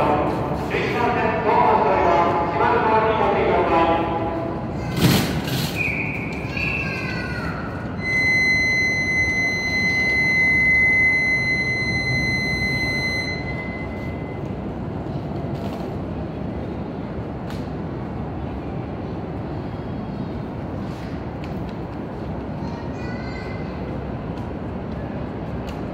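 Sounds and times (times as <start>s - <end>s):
high-pitched signal tone: 8.0s - 14.4s
short wavering tone: 8.0s - 14.4s.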